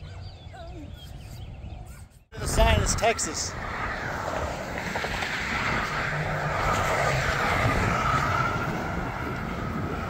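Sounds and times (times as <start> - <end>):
vehicle passing at speed: 2.8 - 10.0
tyre noise on asphalt: 3.7 - 10.0.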